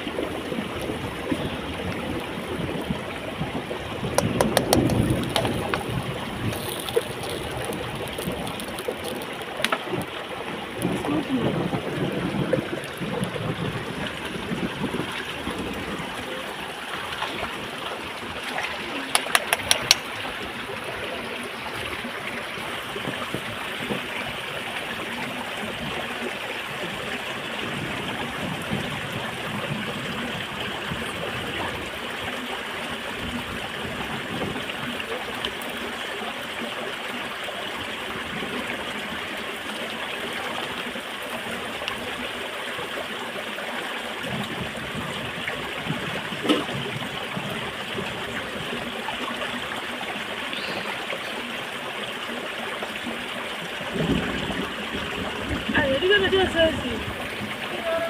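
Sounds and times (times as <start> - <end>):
stream running over rocks: 0.0 - 58.0
sharp clicks: 19.1 - 20.1.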